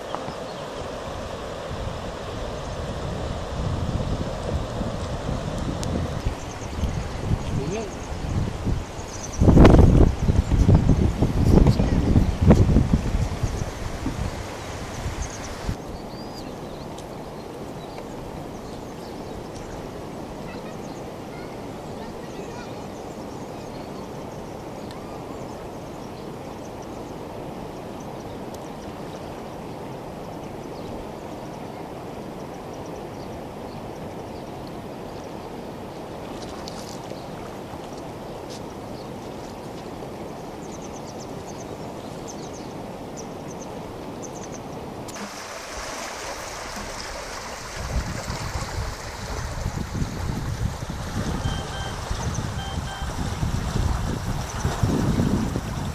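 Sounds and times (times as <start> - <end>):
wind buffeting microphone: 0.0 - 20.7, 44.8 - 55.9
water rushing: 0.0 - 55.9
cow splashing through water: 45.1 - 55.9.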